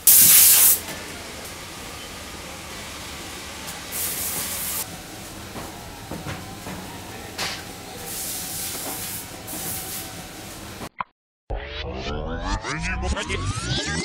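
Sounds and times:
short bursts of hiss: 0.0s - 0.8s
factory machinery: 0.0s - 10.9s
steady background hum: 0.0s - 10.9s.

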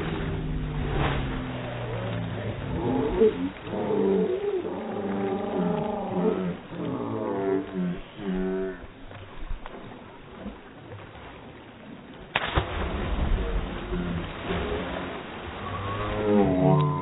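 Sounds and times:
slowed deep voices: 0.0s - 9.5s, 13.2s - 17.0s
slowed water crash and splashing: 0.0s - 17.0s.

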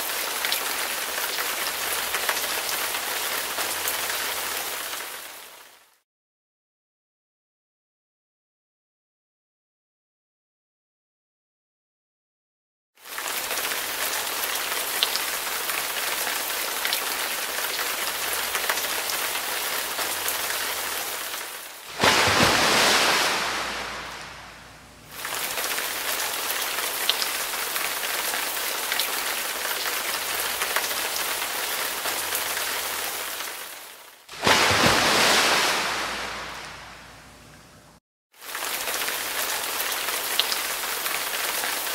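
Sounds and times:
heavy rain hissing: 13.2s - 38.0s.

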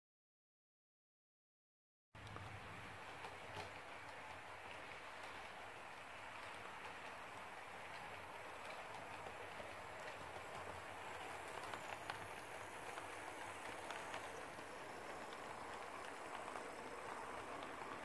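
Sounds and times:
model train rolling hiss: 2.2s - 18.0s.

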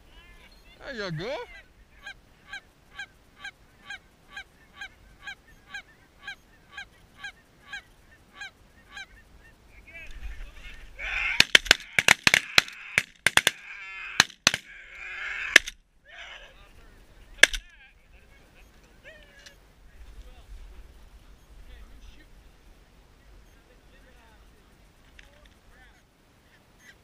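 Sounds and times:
goose honking: 0.4s - 9.3s.

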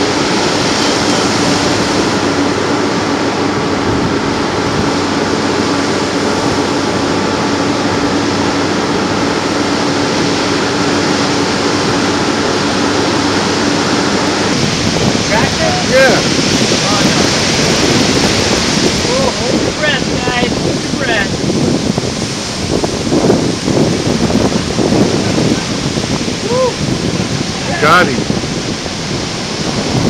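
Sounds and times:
steady low hum: 0.0s - 30.0s
surf breaking and washing in: 0.0s - 30.0s.

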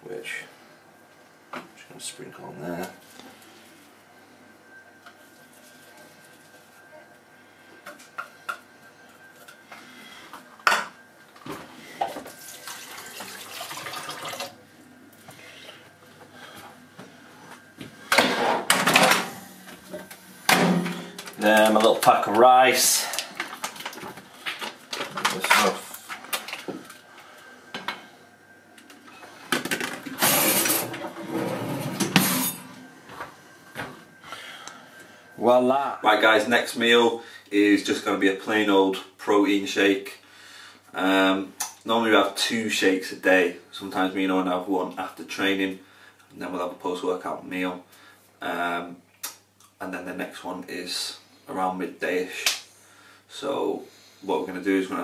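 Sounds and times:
cutlery drawer opening: 30.0s - 32.7s.

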